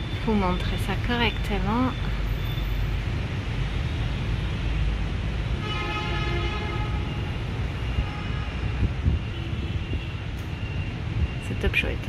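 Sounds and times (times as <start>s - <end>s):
distant vehicle horn: 5.6s - 7.3s.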